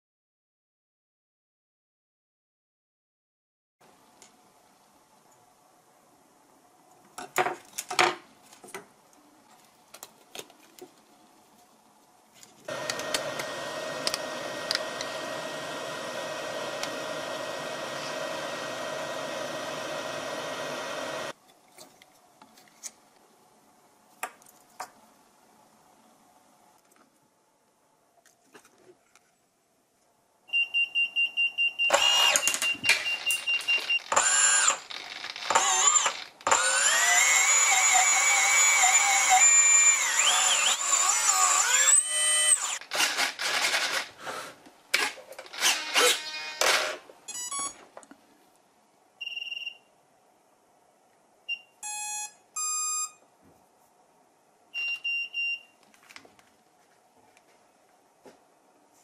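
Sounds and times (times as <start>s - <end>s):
electric motor whining: 12.7s - 21.3s, 34.1s - 34.8s, 35.5s - 42.8s.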